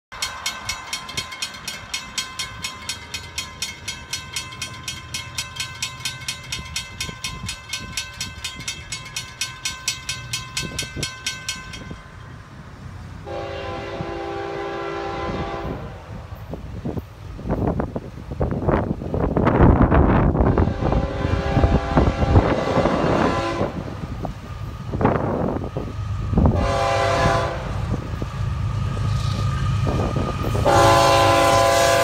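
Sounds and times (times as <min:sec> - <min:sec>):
crossing bells ringing: 0:00.1 - 0:12.9
locomotive air horn blast: 0:13.2 - 0:16.1, 0:20.4 - 0:24.0, 0:26.5 - 0:27.9, 0:30.5 - 0:32.0.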